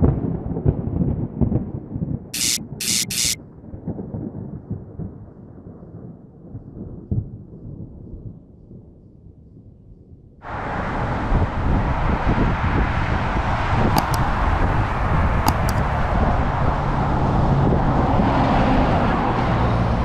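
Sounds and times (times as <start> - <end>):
outdoor traffic noise: 2.4 - 3.4, 10.4 - 20.0.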